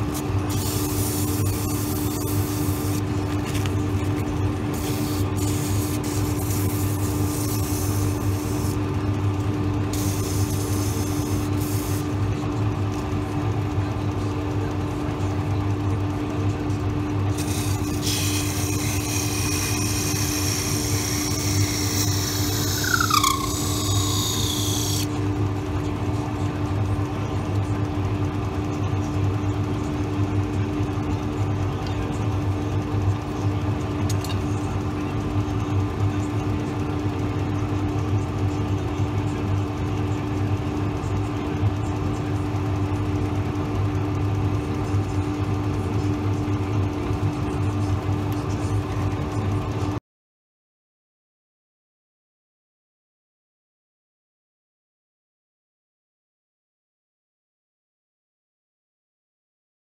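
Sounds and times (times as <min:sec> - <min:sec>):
turning tool cutting wood: 0:17.5 - 0:25.1
wood lathe humming: 0:17.7 - 0:25.1.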